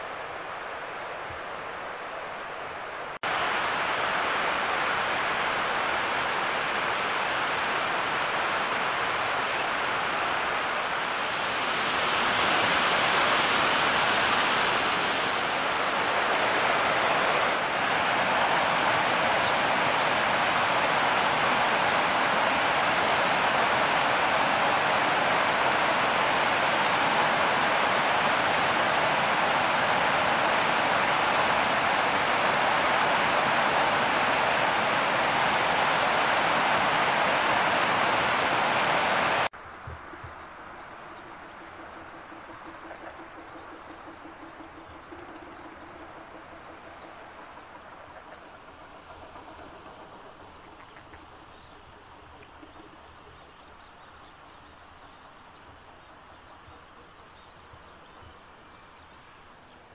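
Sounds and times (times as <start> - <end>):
river rushing over rapids: 0.0 - 39.5.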